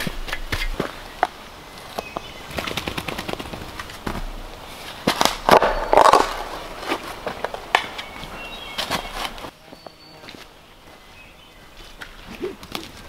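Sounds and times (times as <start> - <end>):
faint bird chirps: 7.9 - 13.0.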